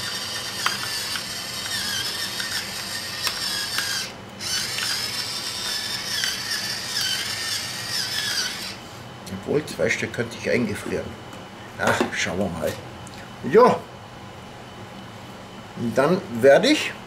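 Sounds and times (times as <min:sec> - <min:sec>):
electric pepper mill motor whirring: 0:00.0 - 0:08.8.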